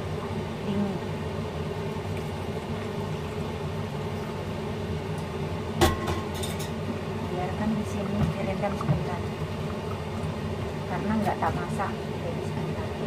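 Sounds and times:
water pouring into a bowl: 1.6s - 4.6s, 7.9s - 11.0s.

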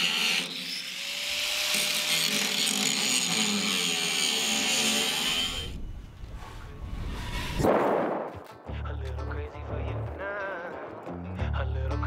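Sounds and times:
angle grinder cutting steel: 0.0s - 5.8s.

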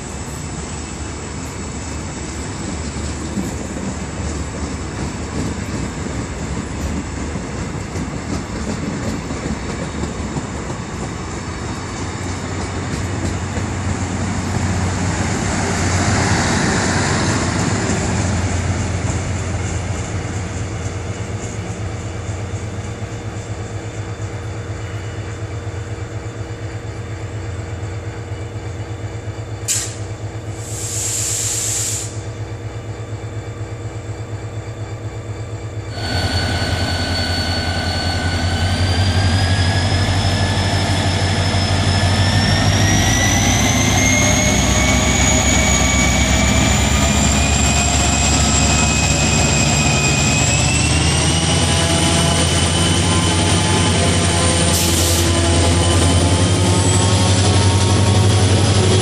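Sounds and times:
locomotive passing with rising whine: 0.0s - 29.6s, 32.4s - 59.0s
distant train rumbling: 0.0s - 59.0s
sharp hiss of air: 29.7s - 32.2s, 54.7s - 55.3s.

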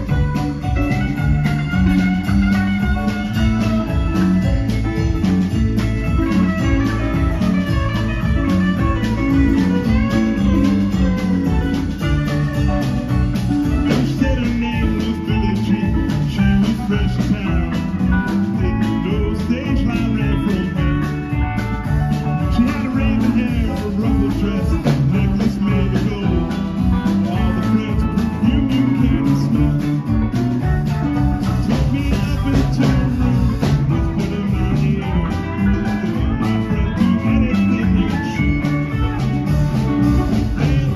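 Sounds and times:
electric guitars: 0.0s - 40.9s
live band playing: 0.0s - 40.9s
steady drum beat: 0.0s - 40.9s.

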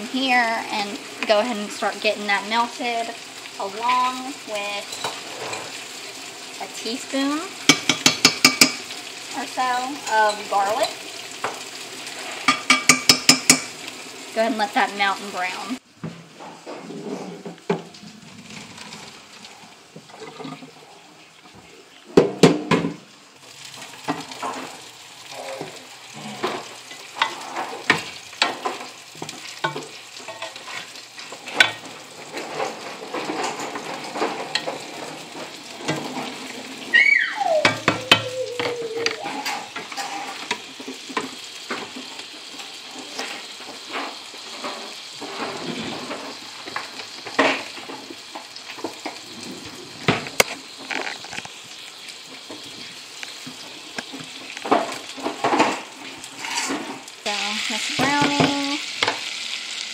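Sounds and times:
butter and garlic sizzling: 0.0s - 59.9s
utensils knocking in pots: 7.2s - 8.9s, 12.4s - 13.8s, 37.6s - 41.3s, 57.9s - 59.2s
short falling squeal: 36.9s - 39.4s.

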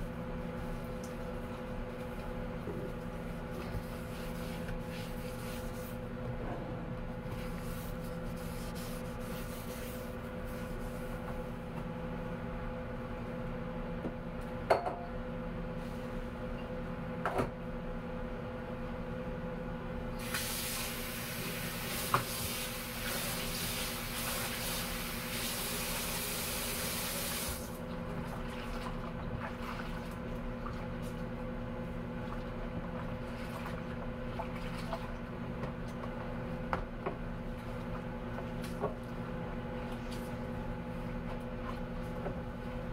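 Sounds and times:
steady low hum: 0.0s - 20.2s
faucet running: 21.7s - 27.7s.

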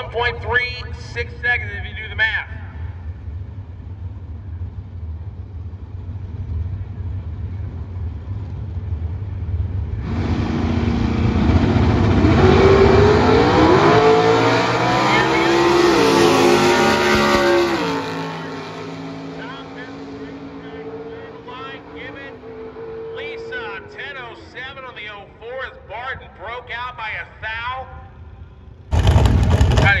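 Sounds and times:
drag cars idling and accelerating: 0.0s - 30.0s.

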